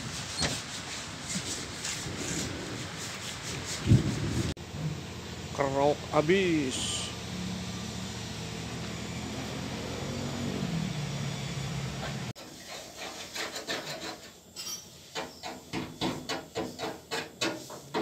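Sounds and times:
scraping paint off sheet metal: 0.0 - 4.5, 12.4 - 18.0
steady low hum: 0.9 - 12.3.

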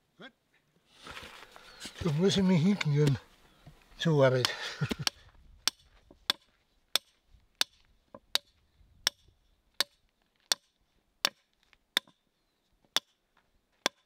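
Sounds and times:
hammer striking wood: 12.0 - 12.2.

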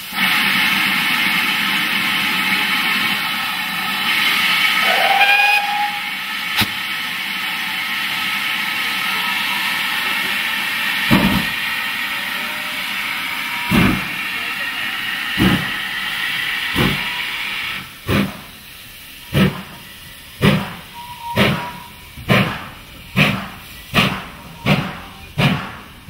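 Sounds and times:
steam locomotive hissing: 0.0 - 26.0
steam whistle blast: 4.7 - 6.7, 12.0 - 14.0, 20.9 - 22.0
locomotive exhaust beats: 13.6 - 14.6, 15.3 - 16.0, 16.7 - 17.2, 17.8 - 26.0.

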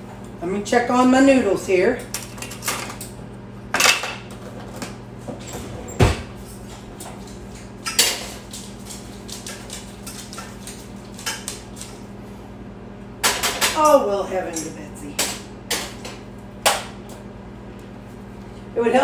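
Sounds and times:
microwave oven humming: 0.0 - 19.0
pots and utensils clanking: 5.4 - 10.6.

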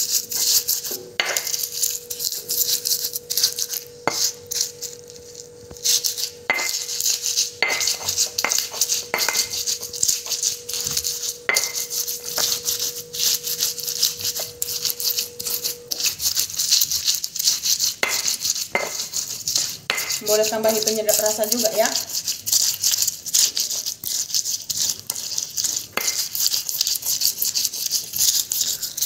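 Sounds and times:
stone pestle grinding: 0.0 - 29.0
stone knocking on stone: 1.2 - 1.5, 11.5 - 12.5.

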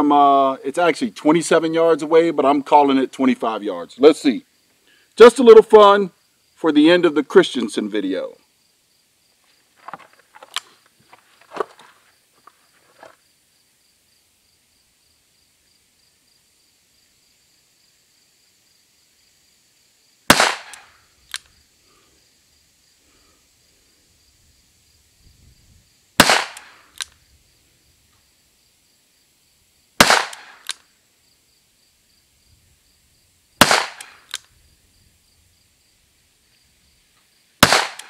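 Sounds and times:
short clicks: 20.6 - 21.5, 26.5 - 27.2, 30.3 - 30.9, 33.9 - 34.5.

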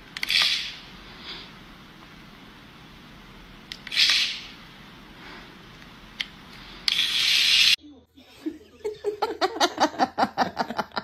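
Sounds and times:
person laughing: 8.4 - 11.0.

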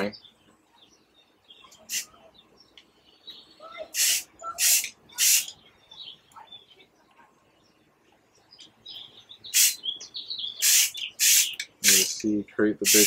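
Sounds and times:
birds chirping faintly: 0.0 - 13.0
aerosol spray can hissing: 4.0 - 5.5, 9.6 - 9.8, 10.6 - 12.1.

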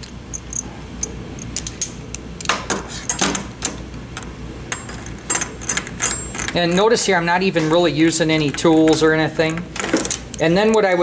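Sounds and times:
metallic clicks of steel tool parts: 0.0 - 3.4.

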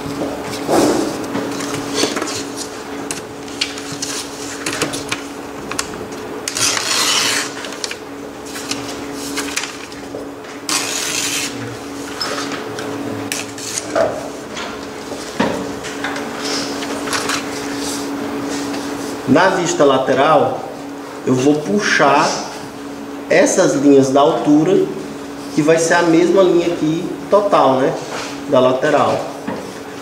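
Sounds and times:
steady low hum: 0.0 - 30.0
paper rubbing and rustling: 0.5 - 2.8, 3.4 - 5.2, 6.5 - 10.1, 10.7 - 11.6.

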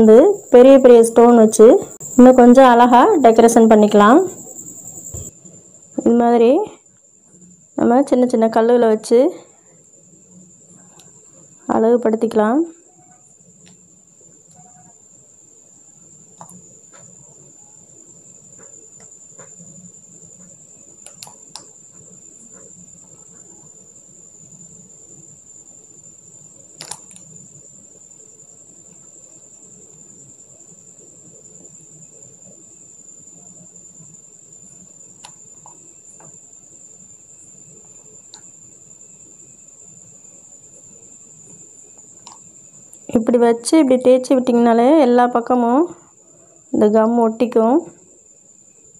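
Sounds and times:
steady high-pitched tone: 0.0 - 6.6
low room noise: 0.0 - 48.9.

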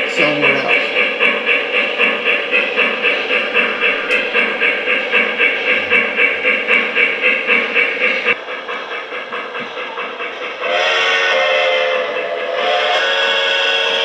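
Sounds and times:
model steam locomotive chuffing: 0.0 - 14.0.

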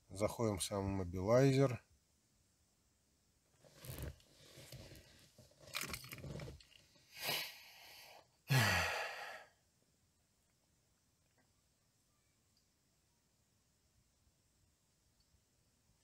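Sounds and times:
person sighing: 7.2 - 9.6.

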